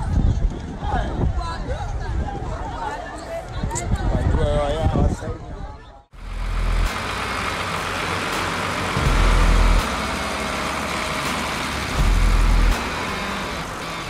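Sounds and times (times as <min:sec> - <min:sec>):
low rumbles: 0:06.2 - 0:14.0
steady rushing noise: 0:06.2 - 0:14.0
tractor engines running: 0:06.2 - 0:14.0.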